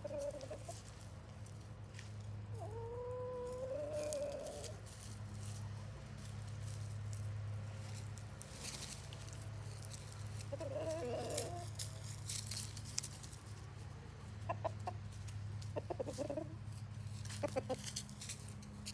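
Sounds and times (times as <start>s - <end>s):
chickens clucking: 0.0s - 18.9s.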